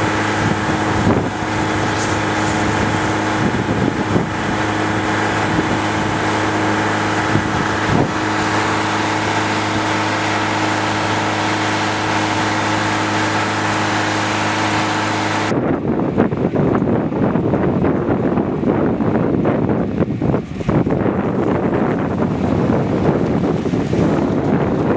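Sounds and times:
hiss: 0.0 - 6.2
engine running steadily: 0.0 - 24.9
wind gusting on microphone: 0.0 - 24.9.

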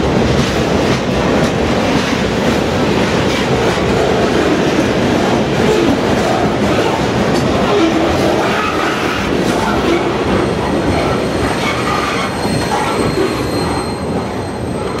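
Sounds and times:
train wheels rumbling on rails: 0.0 - 15.0
train wheels squealing: 9.8 - 15.0.

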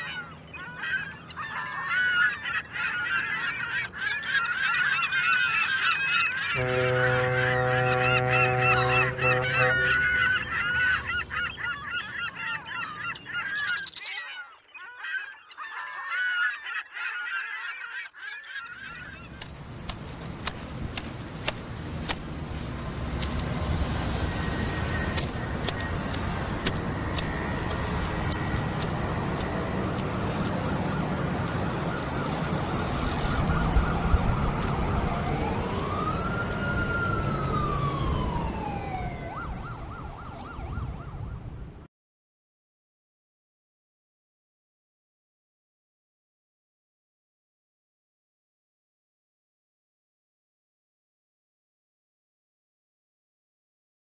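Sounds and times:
siren rising and falling: 0.0 - 14.0, 22.6 - 41.9
chorus of wavering calls: 0.0 - 19.3
street noise hiss: 19.0 - 38.6
scattered clicks: 24.8 - 37.4.

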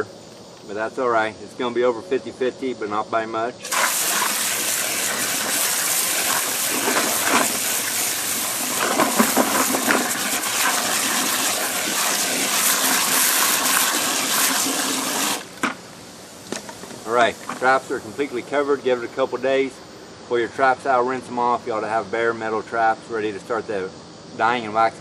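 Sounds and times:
hose water splashing into bucket: 3.6 - 15.8, 16.5 - 17.9.

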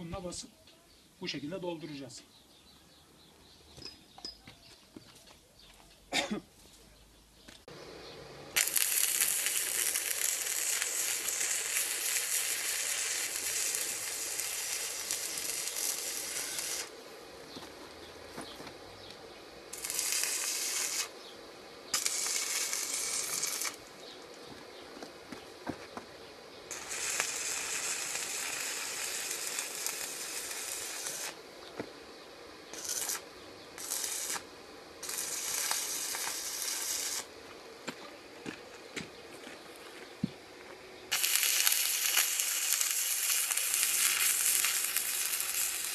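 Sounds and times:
welding arc crackling and hissing: 8.5 - 26.1, 26.7 - 31.4, 32.6 - 38.6, 41.1 - 45.9.

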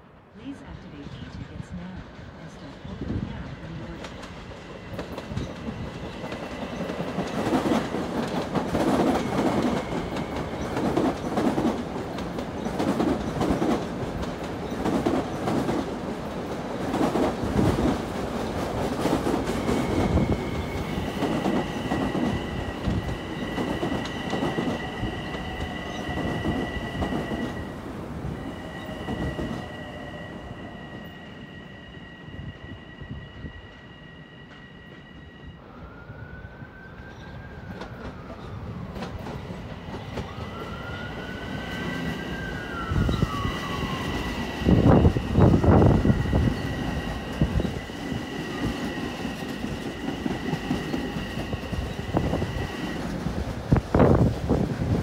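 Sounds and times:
high squeal: 28.3 - 37.4.

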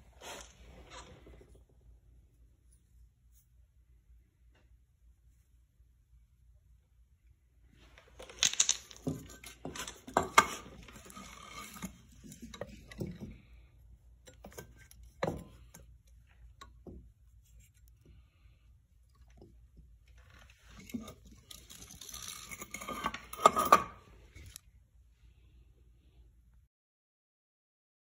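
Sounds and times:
metal clinks and scraping: 7.9 - 13.6, 14.2 - 18.0, 20.2 - 24.6.

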